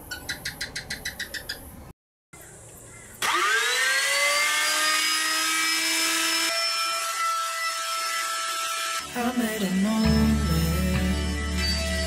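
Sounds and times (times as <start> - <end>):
electric router motor whine: 3.2 - 12.0.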